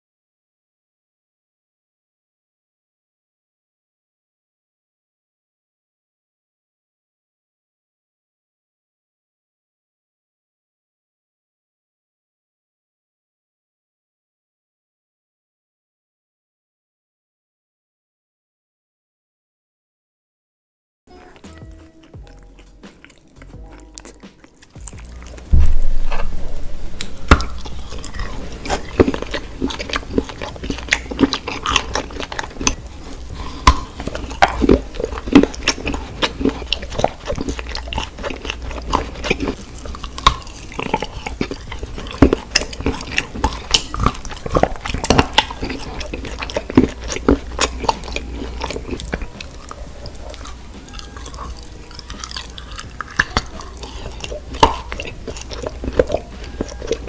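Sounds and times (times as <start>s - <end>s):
biting and chewing soft food: 21.1s - 57.0s
low steady hum: 21.1s - 57.0s
wet mouth smacks and clicks: 27.0s - 50.6s, 51.4s - 57.0s.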